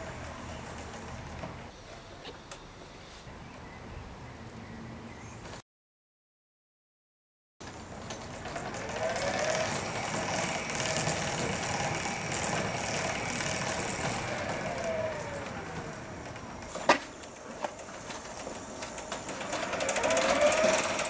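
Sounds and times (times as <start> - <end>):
ride motor whirring and whining: 8.2 - 21.0.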